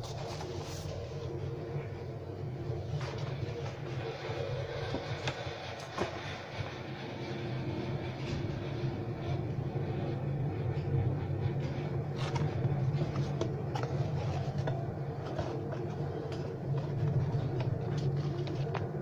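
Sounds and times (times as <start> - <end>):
paper and cardboard crackling: 0.0 - 1.2, 11.6 - 19.0
steady low hum: 0.0 - 19.0.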